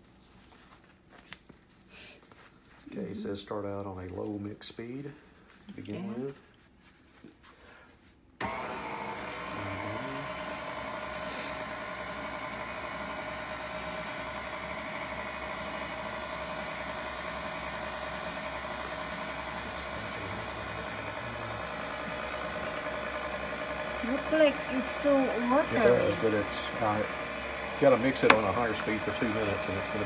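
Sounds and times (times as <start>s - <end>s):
stand mixer motor humming: 8.4s - 30.0s.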